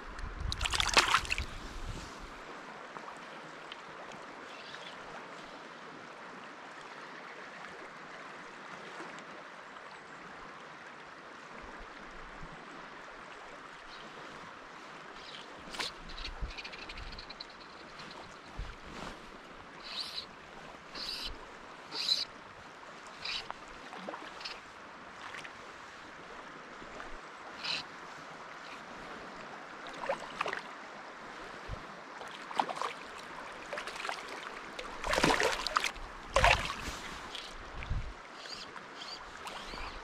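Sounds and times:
water lapping along hull: 0:00.0 - 0:09.4, 0:11.4 - 0:40.0
splashes and knocks: 0:00.5 - 0:01.5, 0:33.7 - 0:37.2.

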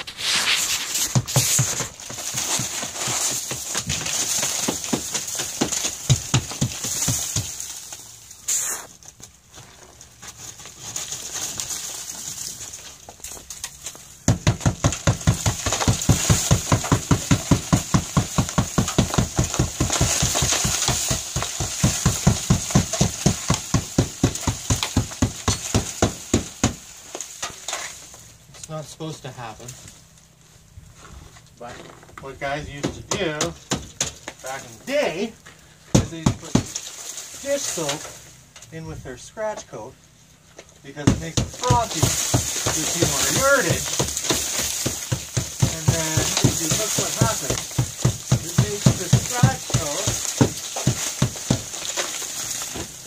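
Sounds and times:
hammer knocking on stucco: 0:14.2 - 0:26.8, 0:41.0 - 0:51.7.

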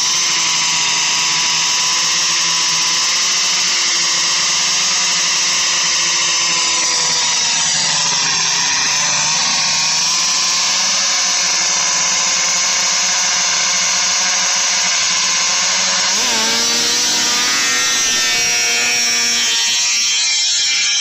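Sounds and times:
snowmobile engine idling and revving: 0:16.1 - 0:19.9.

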